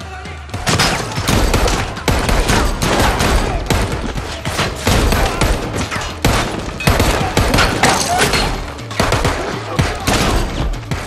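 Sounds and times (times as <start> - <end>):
rapid gunfire: 0.6 - 11.0.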